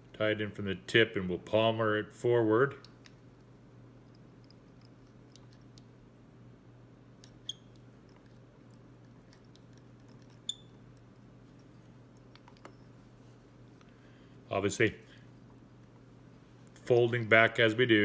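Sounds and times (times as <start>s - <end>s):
low steady hum: 0.0s - 18.0s
soft ticks of handling: 2.8s - 6.0s, 7.2s - 14.0s.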